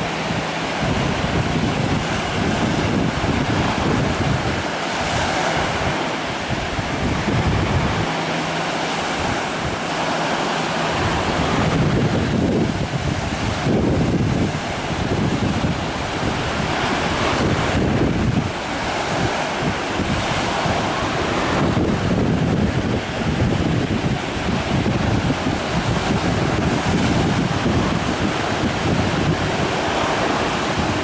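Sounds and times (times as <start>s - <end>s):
waves washing on sandy shore: 0.0s - 31.0s
wind buffeting microphone: 0.0s - 31.0s.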